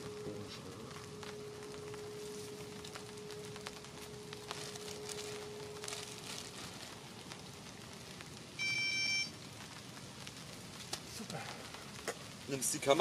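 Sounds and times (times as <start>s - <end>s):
faint steady hum: 0.0s - 13.0s
light crackling and rustling: 0.0s - 13.0s
high electronic beep: 8.6s - 9.3s.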